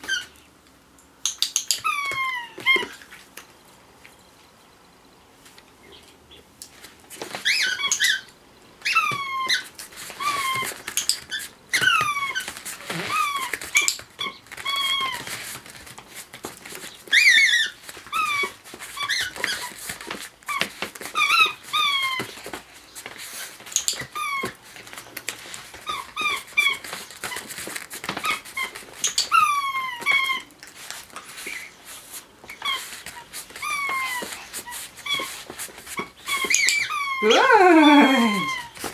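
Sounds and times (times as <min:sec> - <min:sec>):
squeaky toy squeaking: 0:07.4 - 0:15.2.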